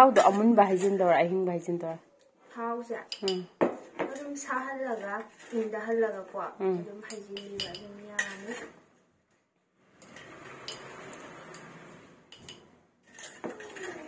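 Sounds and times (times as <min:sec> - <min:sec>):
metal spoon clinking on glass jar: 0:03.1 - 0:03.5, 0:07.0 - 0:08.6, 0:12.3 - 0:14.0
spoon scraping steel plate: 0:03.1 - 0:08.8, 0:09.9 - 0:14.0
woman's voice: 0:05.6 - 0:08.7.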